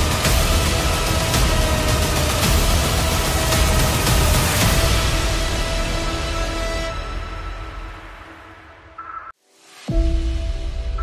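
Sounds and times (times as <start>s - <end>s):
steady low bass: 0.0s - 6.0s
background music with sustained tones: 0.0s - 11.0s.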